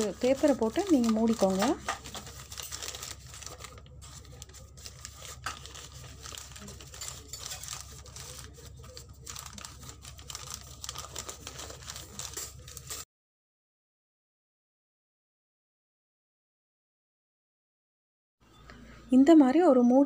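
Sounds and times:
paper crinkling and rustling: 0:00.0 - 0:13.0.

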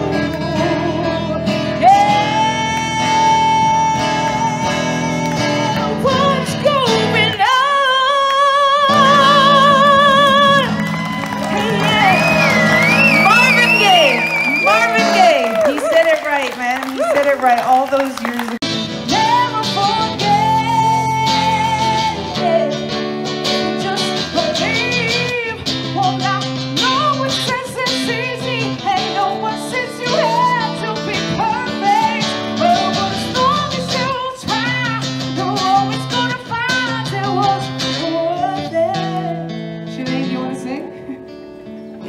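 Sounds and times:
woman singing: 0:00.0 - 0:41.2
acoustic guitars: 0:00.0 - 0:42.0.

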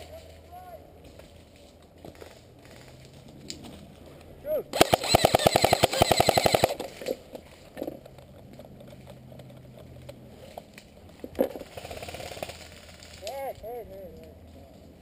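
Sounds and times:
airsoft rifle full-auto burst: 0:04.8 - 0:06.8, 0:11.7 - 0:13.2.

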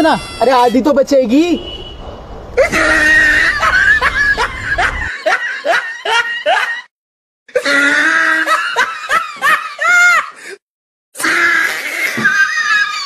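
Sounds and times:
high-pitched laughter: 0:02.6 - 0:06.9, 0:11.2 - 0:13.0.

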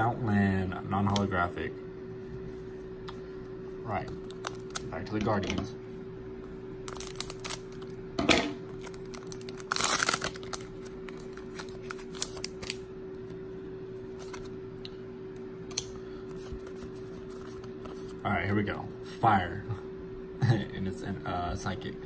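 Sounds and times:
faint steady hum: 0:00.0 - 0:22.0
foil crinkling: 0:06.9 - 0:07.9, 0:08.7 - 0:12.8
scissors cutting foil: 0:08.8 - 0:12.8.

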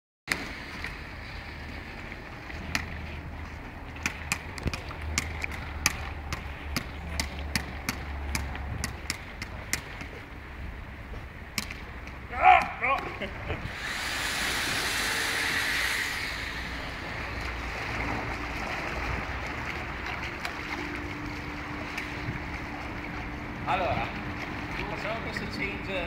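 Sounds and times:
ball slapping hands and paddle: 0:11.5 - 0:13.1
low rumble: 0:13.3 - 0:26.0.

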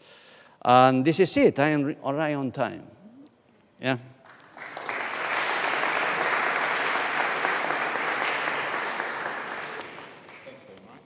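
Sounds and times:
audience applauding: 0:04.2 - 0:10.6.

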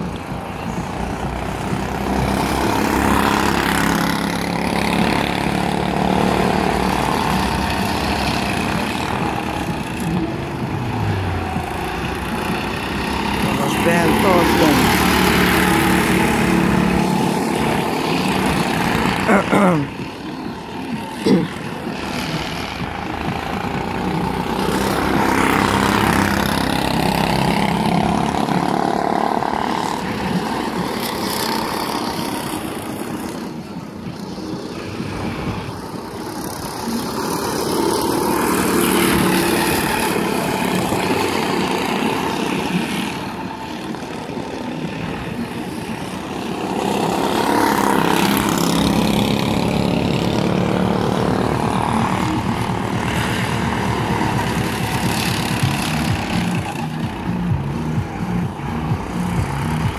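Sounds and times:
go-kart engines revving: 0:00.0 - 0:59.9.

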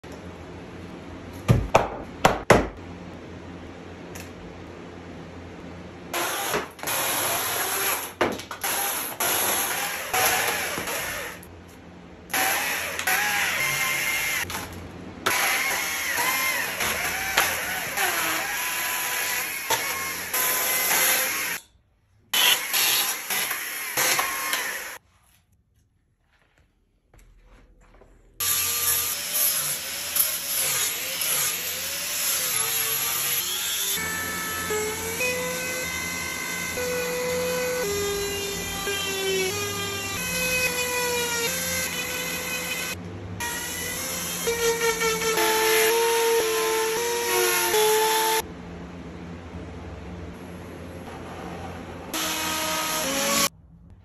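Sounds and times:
angle grinder grinding wood: 0:06.2 - 0:11.5, 0:12.3 - 0:21.6, 0:22.4 - 0:25.0, 0:28.4 - 0:48.4, 0:51.1 - 0:53.5
chainsaw cutting log: 0:12.3 - 0:14.6, 0:22.4 - 0:25.0.

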